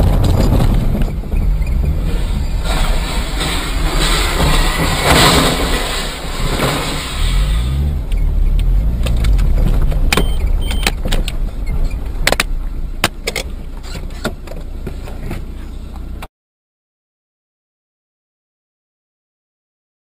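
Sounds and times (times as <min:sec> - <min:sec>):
car engine rising and falling: 0:00.0 - 0:16.3
road and wind noise: 0:00.0 - 0:16.3
sharp clicks and knocks: 0:08.0 - 0:16.1.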